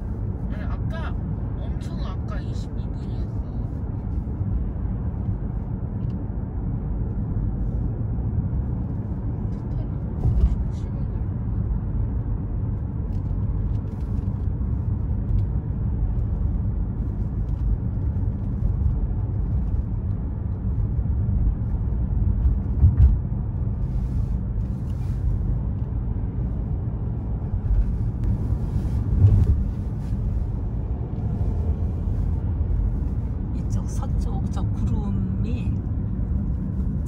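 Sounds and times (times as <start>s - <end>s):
road and engine rumble in car: 0.0s - 37.0s.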